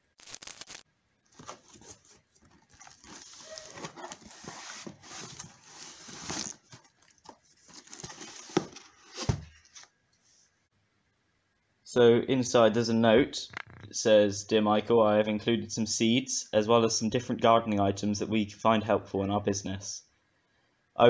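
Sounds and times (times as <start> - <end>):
packing tape peeling: 0.2 - 7.2
cardboard flaps scraping and rustling: 1.3 - 9.9
cardboard packing shuffled: 1.3 - 9.9.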